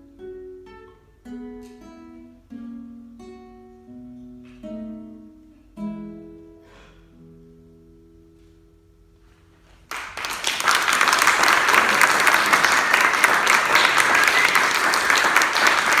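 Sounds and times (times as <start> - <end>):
classical guitar chord: 0.0 - 9.8
audience applause: 9.9 - 16.0.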